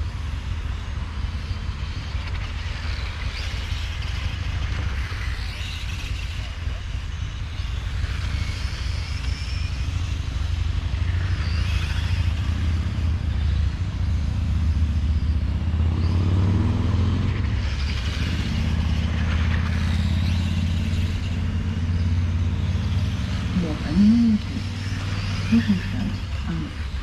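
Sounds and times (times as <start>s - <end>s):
rc car motors whining: 0.0s - 27.0s
steady low rumble: 17.2s - 27.0s.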